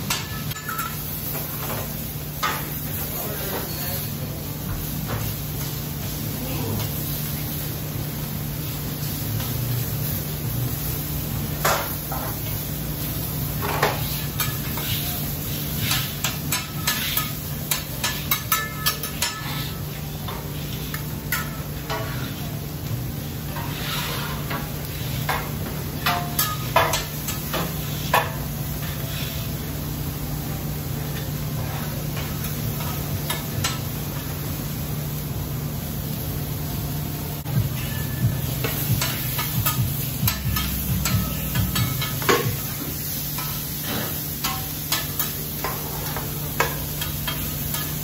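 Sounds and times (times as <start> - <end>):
kitchen hum: 0.0 - 48.0
meat and vegetables sizzling: 0.0 - 48.0
metal spatulas scraping griddle: 13.6 - 22.5, 23.5 - 29.5, 43.4 - 48.0.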